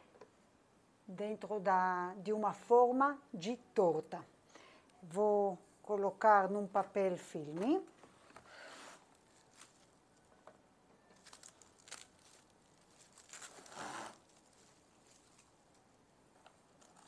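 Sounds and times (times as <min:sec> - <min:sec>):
cling film rustling: 0:07.6 - 0:10.4, 0:11.1 - 0:17.0.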